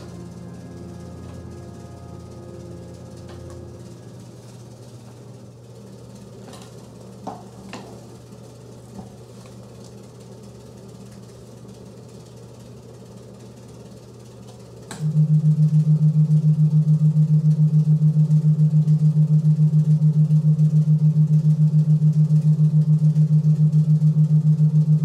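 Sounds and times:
pulsing low electronic tone: 0.0s - 4.7s, 15.0s - 25.0s
steady low hum: 0.0s - 25.0s.

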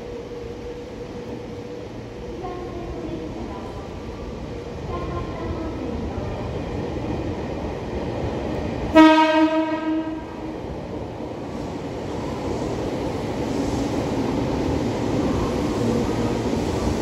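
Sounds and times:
train rumble: 0.0s - 17.0s
train horn blast: 8.9s - 10.3s.

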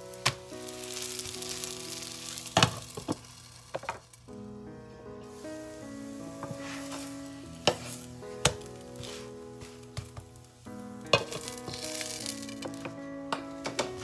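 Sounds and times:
pancake sizzling in oil: 0.0s - 4.3s, 5.2s - 14.0s
soft background music: 0.0s - 14.0s.

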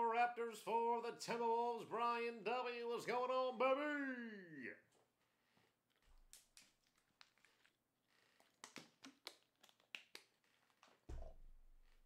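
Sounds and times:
low thump: 11.1s - 11.6s.

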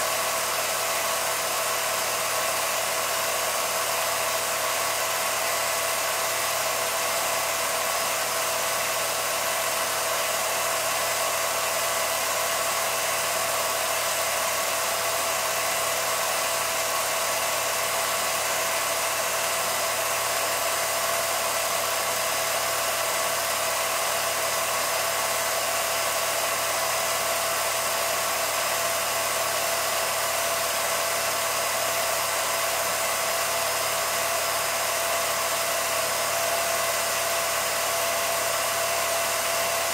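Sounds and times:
film projector running: 0.0s - 39.9s.

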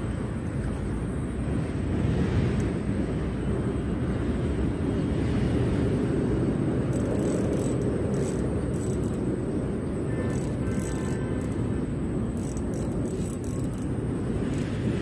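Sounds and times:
fishing reel ticking: 6.9s - 9.4s, 10.2s - 14.9s.

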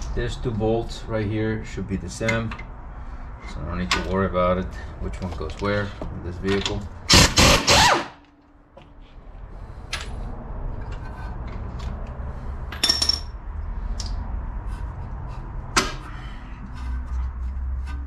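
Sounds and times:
metallic clinks and knocks: 12.7s - 13.4s.

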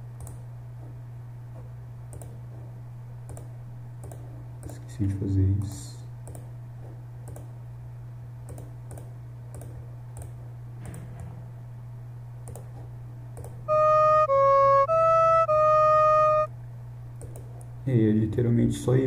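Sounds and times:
mouse clicks: 12.4s - 12.7s
sampled flute notes: 13.7s - 16.5s.

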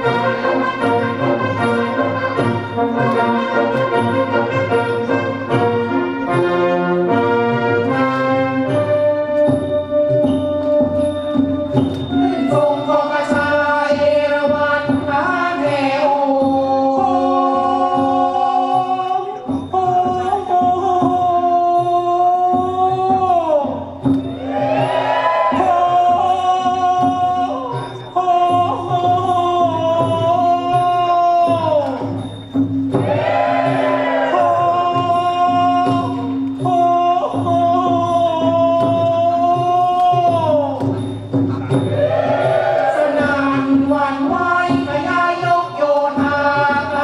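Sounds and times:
orchestral music: 0.0s - 13.6s
person singing: 12.2s - 32.1s, 33.0s - 41.0s, 41.6s - 47.0s.

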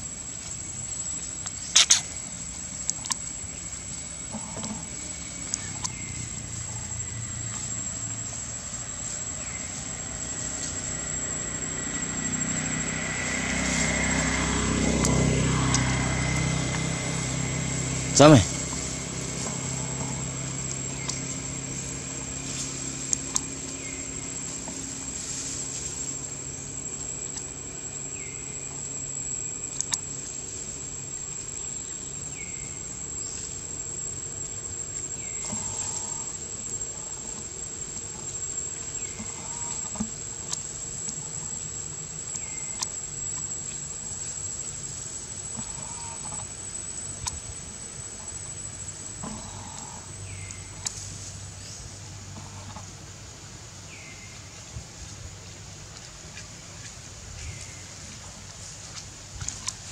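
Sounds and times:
crickets trilling: 0.0s - 59.9s
faint clicks in grass: 1.4s - 2.1s, 20.7s - 21.3s, 39.0s - 41.2s, 49.2s - 51.3s, 55.9s - 59.9s.

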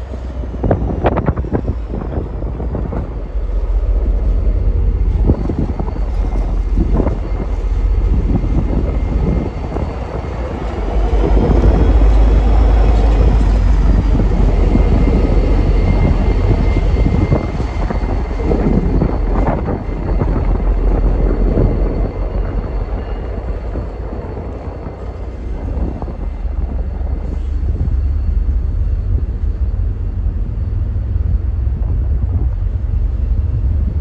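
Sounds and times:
diesel locomotive engine rumbling: 0.0s - 34.0s
faint high whine: 2.0s - 25.0s.

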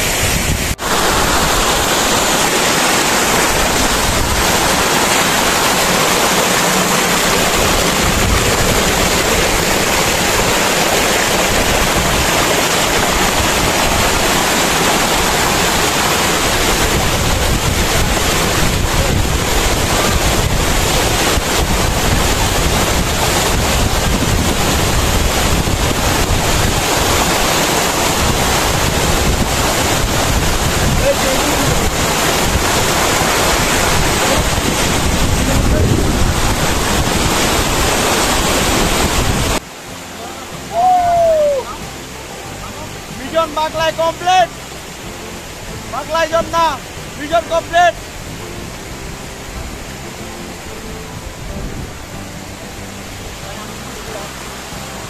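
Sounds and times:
wind rumbling on microphone: 0.0s - 39.6s, 49.4s - 53.4s
waterfall rushing: 0.0s - 55.0s.

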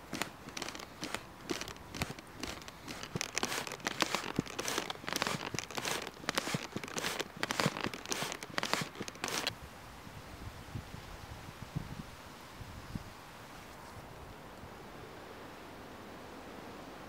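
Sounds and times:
charcoal fire crackling: 0.0s - 9.5s.

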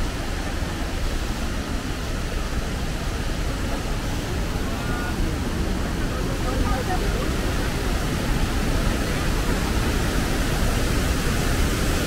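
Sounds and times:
waterfall rushing roar: 0.0s - 12.0s.

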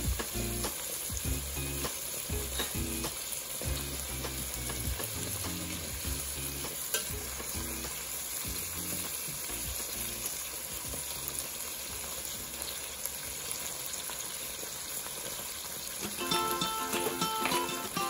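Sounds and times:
background music: 0.0s - 11.5s, 16.0s - 18.0s
meat sizzling in a pot: 0.0s - 18.0s.

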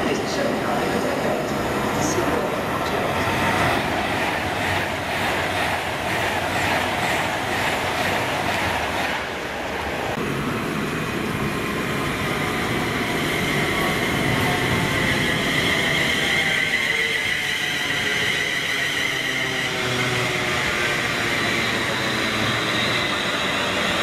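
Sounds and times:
electric train high whine: 0.0s - 24.0s.

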